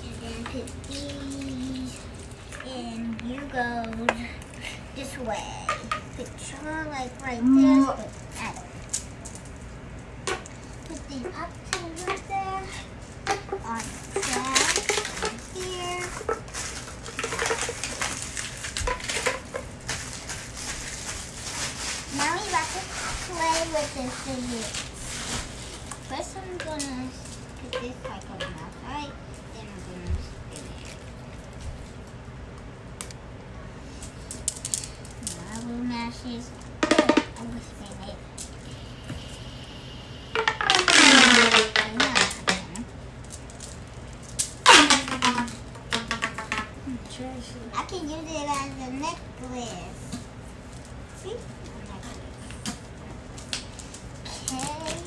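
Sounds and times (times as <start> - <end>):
plastic pieces tapping: 13.2 - 20.5, 36.8 - 37.4, 40.4 - 46.7, 53.4 - 55.0
plastic wrappers crinkling: 13.8 - 28.8, 30.5 - 32.2, 40.4 - 46.6
plastic tube ratcheting zip: 40.4 - 42.6, 44.4 - 46.6.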